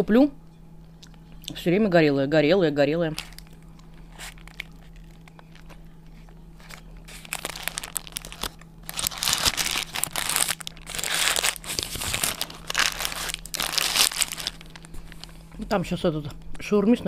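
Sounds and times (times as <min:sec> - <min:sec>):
paper wrapper crinkling: 0:03.1 - 0:15.5.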